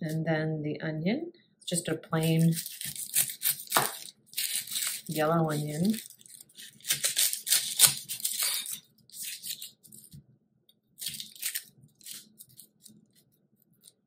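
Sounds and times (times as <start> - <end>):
onion skin crackling: 1.8 - 10.2, 11.0 - 14.0
knife cutting onion on wood: 2.4 - 6.0, 6.6 - 10.2.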